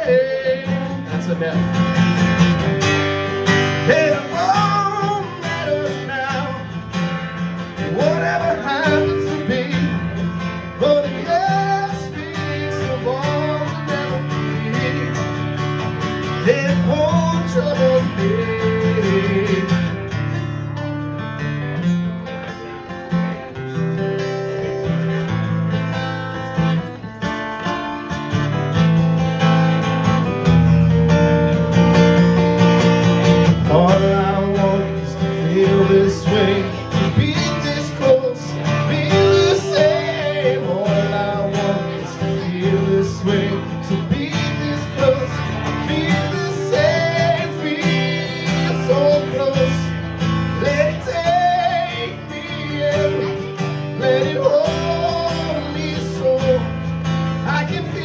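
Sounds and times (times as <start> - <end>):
man singing: 0.0 - 20.4, 33.2 - 58.0
acoustic guitar strumming: 0.0 - 58.0.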